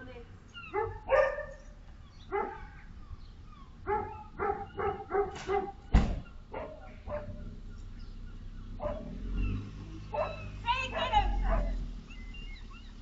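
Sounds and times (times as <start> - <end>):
dog barking: 0.7 - 1.6, 2.3 - 2.8, 3.8 - 5.9, 6.5 - 7.4, 8.8 - 9.2, 10.1 - 11.8.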